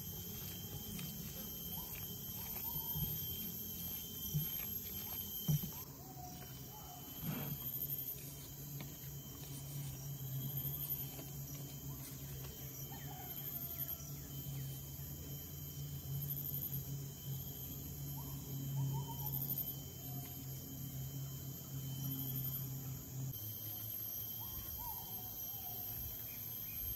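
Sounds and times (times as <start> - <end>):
high thin pulsing call: 0.0 - 8.4, 23.4 - 26.9
insects chirping: 0.0 - 26.9.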